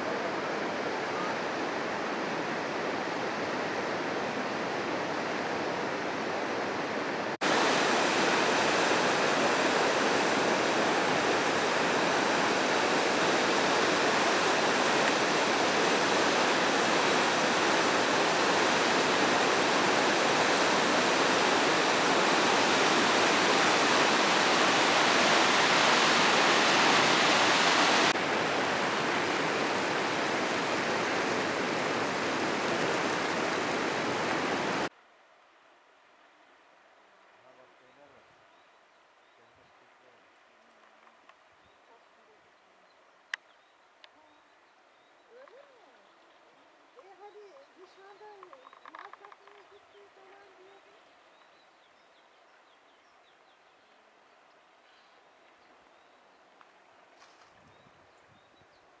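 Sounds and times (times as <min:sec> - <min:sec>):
river rushing through rapids: 0:00.0 - 0:34.9.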